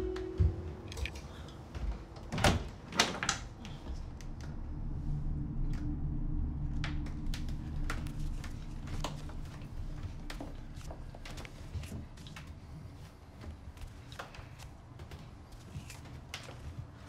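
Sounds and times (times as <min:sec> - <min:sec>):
low steady hum: 0:03.4 - 0:14.1.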